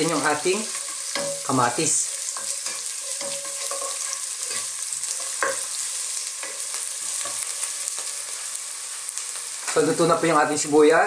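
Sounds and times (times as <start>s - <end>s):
onion and garlic sizzling: 0.0s - 11.0s
spatula scraping and knocking pan: 0.6s - 1.5s, 2.1s - 8.3s.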